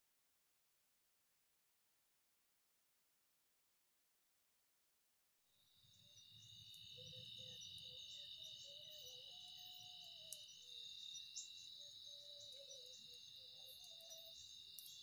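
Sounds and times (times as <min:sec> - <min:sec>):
crickets trilling: 0:05.7 - 0:15.0.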